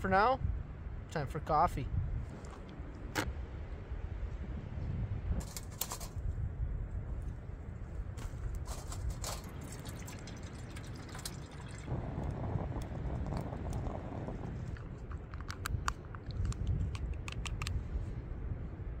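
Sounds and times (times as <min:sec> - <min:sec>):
low wind rumble: 0:00.0 - 0:19.0
coffee pouring into cup: 0:09.4 - 0:15.3.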